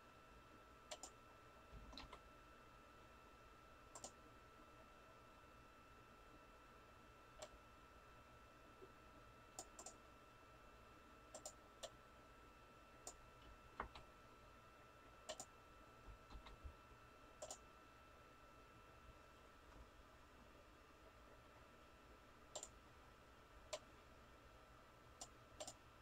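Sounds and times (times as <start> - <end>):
computer mouse clicks: 0.9 - 1.2, 1.8 - 2.2, 3.9 - 4.2, 9.6 - 10.0, 11.3 - 12.0, 13.0 - 14.1, 15.2 - 15.5, 16.3 - 16.6, 17.4 - 17.6, 22.5 - 22.8, 23.7 - 23.9, 25.2 - 25.8.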